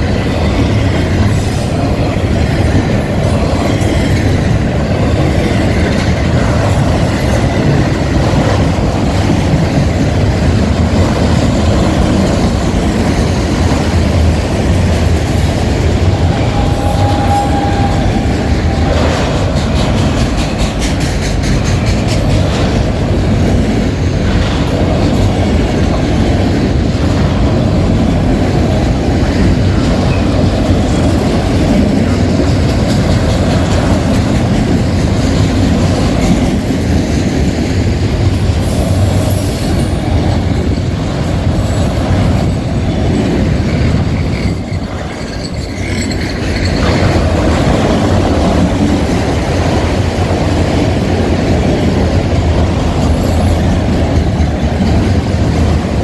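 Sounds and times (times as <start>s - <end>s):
steel wheels rumbling on rail: 0.0s - 56.0s
wheels clicking over rail joints: 0.0s - 56.0s
high wheel squeal: 16.1s - 19.1s, 43.5s - 47.2s.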